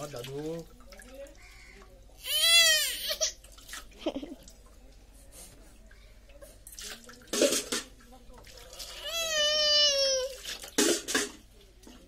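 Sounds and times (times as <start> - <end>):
water poured and splashing: 0.0 - 2.2, 3.3 - 5.1, 6.2 - 12.0
baby crying wail: 2.2 - 3.4, 8.9 - 10.4.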